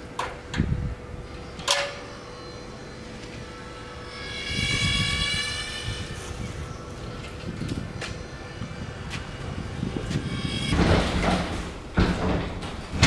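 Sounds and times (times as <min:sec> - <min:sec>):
passing engine rumble and whine: 0:00.0 - 0:13.0.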